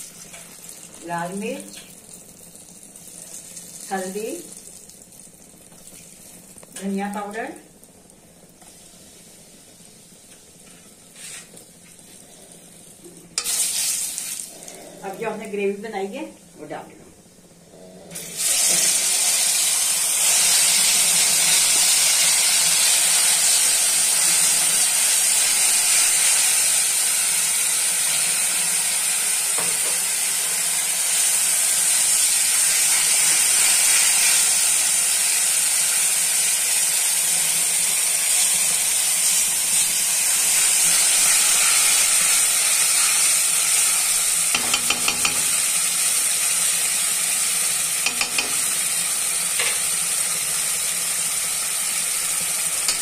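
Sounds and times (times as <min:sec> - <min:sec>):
paste sizzling in hot oil: 0:00.0 - 0:15.2, 0:18.2 - 0:53.0
spatula scraping pan: 0:10.6 - 0:11.6, 0:44.5 - 0:45.6, 0:48.0 - 0:48.8.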